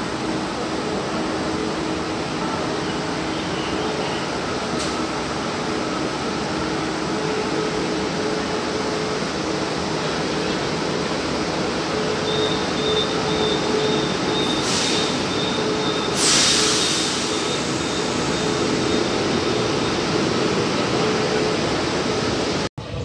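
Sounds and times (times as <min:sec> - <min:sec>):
train machinery humming: 0:00.0 - 0:23.0
short air hisses: 0:14.6 - 0:15.3, 0:16.2 - 0:17.6.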